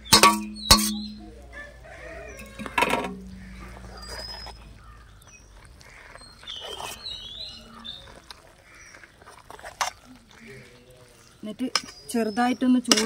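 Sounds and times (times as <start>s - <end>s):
metal spatula scraping steel pot: 0.0s - 1.3s, 2.4s - 4.7s
birds chirping: 0.0s - 13.0s.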